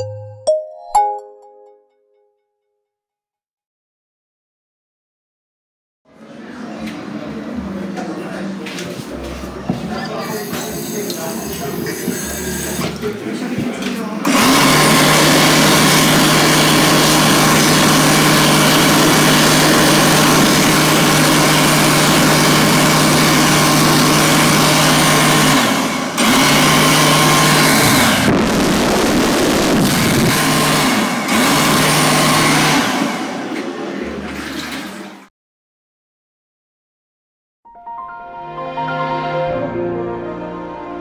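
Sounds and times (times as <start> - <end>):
hand dryer running: 10.3 - 13.2, 14.1 - 35.2.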